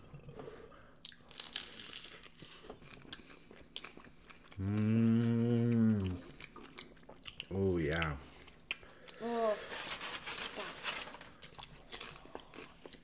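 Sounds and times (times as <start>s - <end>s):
person chewing crunchy food: 1.0s - 9.2s, 11.4s - 13.0s
person humming mmm: 4.6s - 6.4s, 9.1s - 9.6s.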